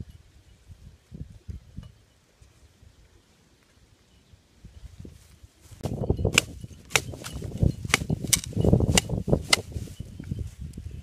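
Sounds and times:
rustling and scraping on dirt: 0:04.8 - 0:11.0
wooden sticks clacking: 0:06.3 - 0:09.7.

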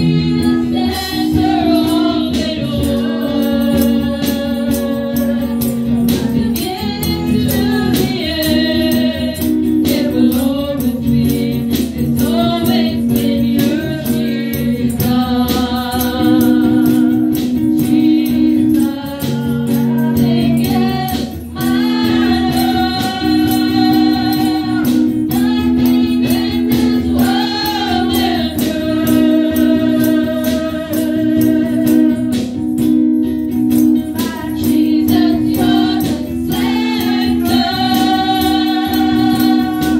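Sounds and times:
woman singing into a microphone: 0:00.0 - 0:32.8, 0:33.7 - 0:39.9
percussion beat: 0:00.0 - 0:39.9
backing singers: 0:34.1 - 0:39.9.

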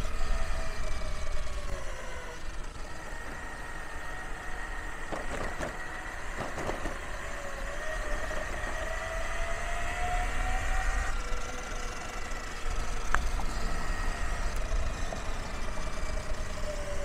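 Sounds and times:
gear drive whining: 0:00.0 - 0:17.0
wheels rumbling on road: 0:00.0 - 0:17.0
wheels clattering over paving: 0:00.8 - 0:10.3.

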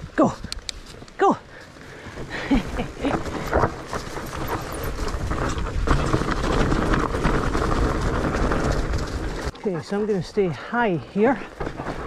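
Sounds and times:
tyre and wind noise: 0:00.0 - 0:12.0
bike rattling and knocking: 0:02.0 - 0:10.4, 0:11.0 - 0:12.0.

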